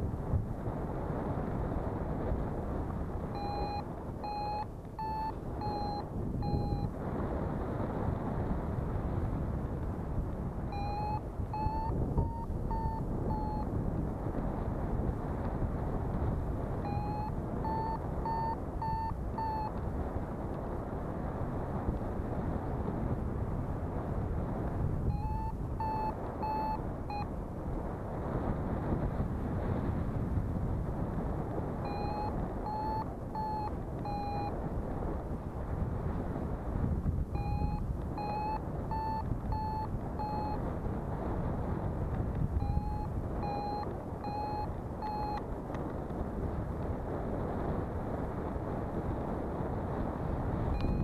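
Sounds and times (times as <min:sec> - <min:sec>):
wind rushing over microphone: 0:00.0 - 0:51.0
variometer beeping: 0:01.9 - 0:07.1, 0:09.3 - 0:22.8, 0:24.6 - 0:27.6, 0:30.9 - 0:35.1, 0:36.0 - 0:46.0, 0:49.8 - 0:51.0.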